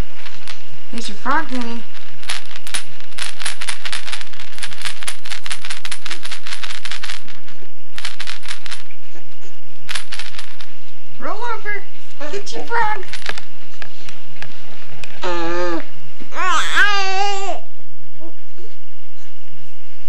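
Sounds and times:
sharp clicks and rattles: 0.0 - 9.0, 9.9 - 10.8, 12.6 - 15.2.

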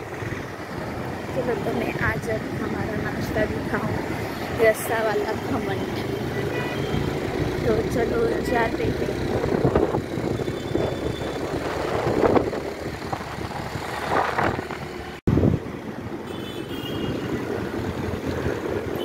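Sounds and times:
street traffic noise: 0.0 - 19.0
wind rushing over microphone: 8.7 - 16.2.

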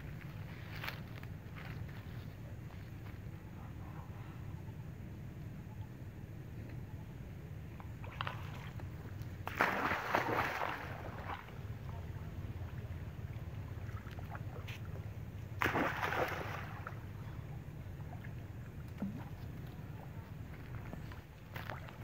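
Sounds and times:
steady low rumble: 0.0 - 9.6, 10.8 - 22.0
water splashing: 8.0 - 15.0, 15.6 - 17.2.

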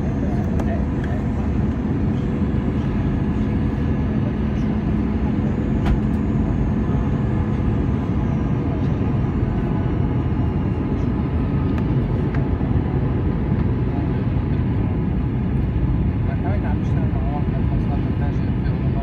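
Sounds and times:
jet engine hum: 0.0 - 19.0.

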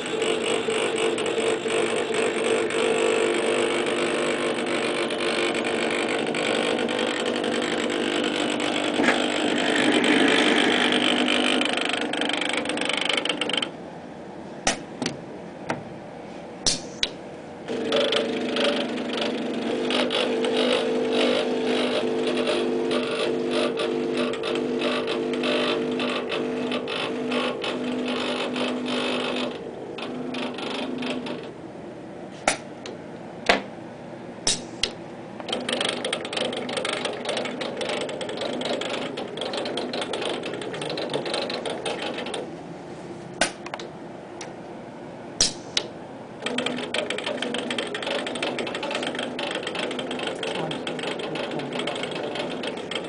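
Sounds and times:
robot arm motors buzzing: 0.0 - 13.7, 17.7 - 31.6, 35.5 - 42.5, 46.4 - 53.0
motor whine: 0.0 - 14.3, 17.0 - 32.1, 34.7 - 44.6, 45.7 - 53.0.

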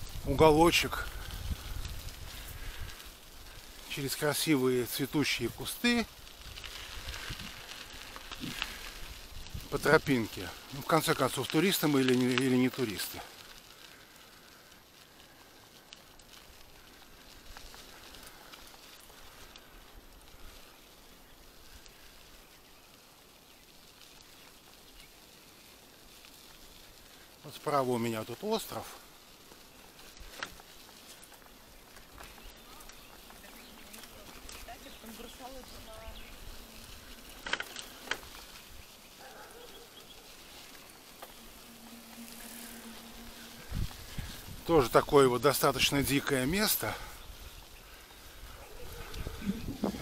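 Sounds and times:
bike rolling on dirt road: 0.0 - 50.0
faint bird calls: 31.6 - 44.5.

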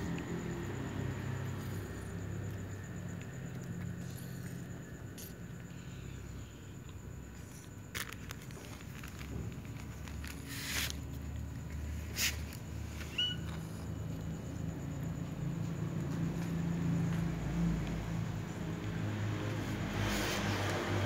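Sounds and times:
cats chewing and shuffling: 0.0 - 21.0
high squeak: 13.0 - 13.6.

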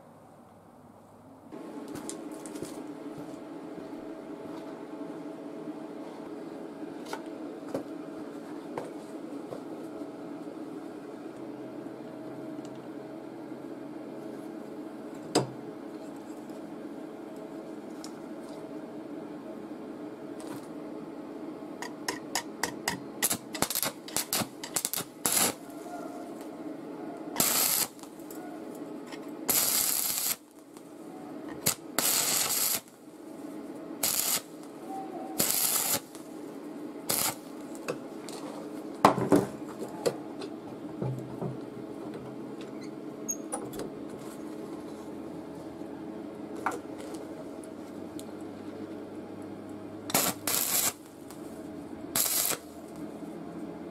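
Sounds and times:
steady low hum: 0.0 - 53.9
short welding bursts: 23.2 - 25.6, 27.4 - 28.0, 29.5 - 30.4, 31.6 - 32.9, 34.0 - 34.5, 35.4 - 36.2, 37.1 - 37.5, 50.1 - 51.0, 52.2 - 52.7.

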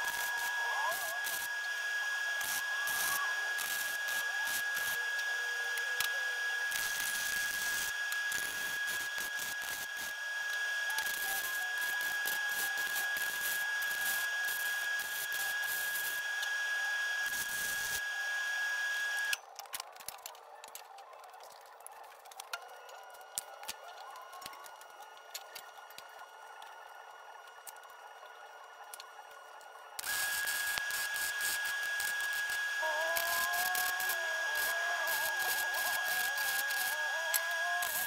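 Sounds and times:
welding arc crackling: 0.0 - 38.0
thin high tone: 28.8 - 38.0.

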